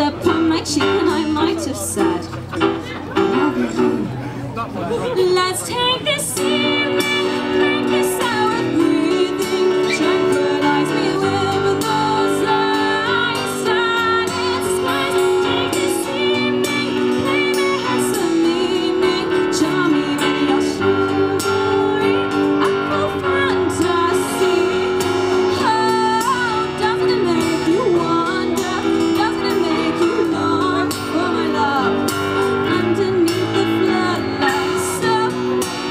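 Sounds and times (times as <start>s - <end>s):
woman singing: 0.0s - 2.3s, 4.9s - 35.9s
electronic keyboard: 0.0s - 5.1s
acoustic guitar: 0.0s - 35.9s.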